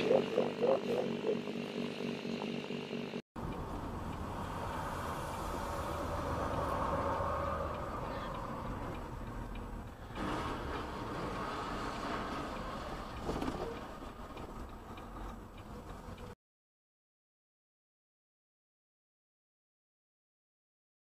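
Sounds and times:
road and engine noise inside vehicle: 1.6s - 16.4s.

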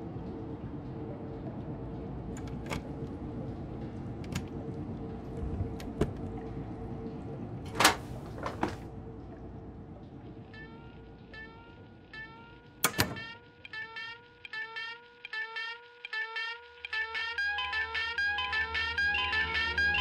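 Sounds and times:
low hum of room tone: 0.0s - 20.0s
door handle and latch clicking: 12.8s - 13.2s.

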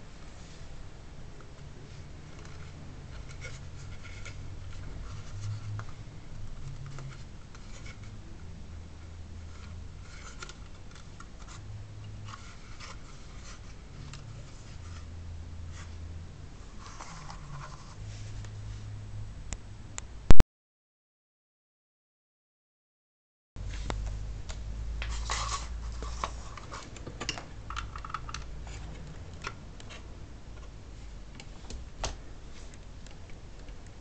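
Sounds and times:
plastic device clicks and scrapes: 9.5s - 11.6s.

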